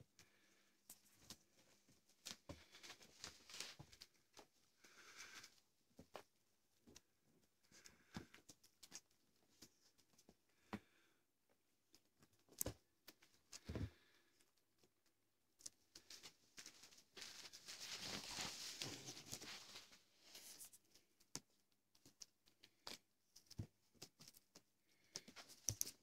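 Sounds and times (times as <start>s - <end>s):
paper packet rustling and crinkling: 16.0s - 20.7s.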